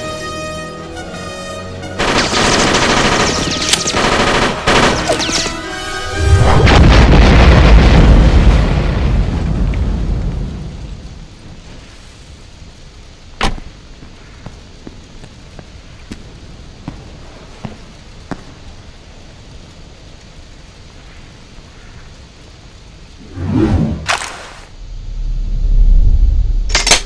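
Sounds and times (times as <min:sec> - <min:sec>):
action film score: 0:00.0 - 0:15.1, 0:15.7 - 0:27.0
rapid gunfire: 0:02.0 - 0:05.5
explosion deep boom: 0:06.2 - 0:10.8.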